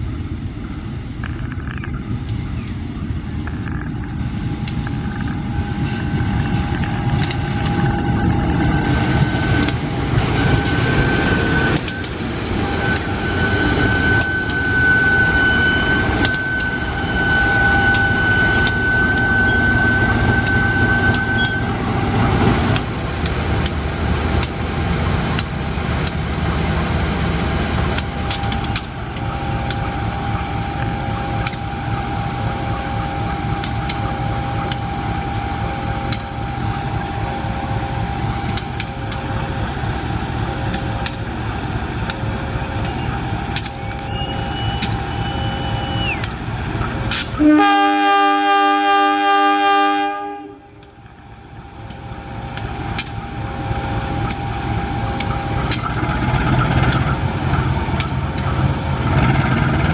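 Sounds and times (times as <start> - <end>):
diesel locomotive rumbling past: 0.0 - 59.9
thin high whine: 3.0 - 22.8
wheels clicking over rails: 4.6 - 14.7, 22.4 - 47.4, 50.8 - 59.9.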